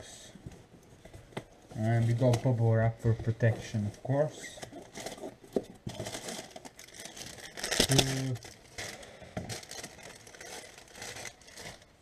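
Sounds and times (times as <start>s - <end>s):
bubble wrap crinkling: 4.4s - 12.0s.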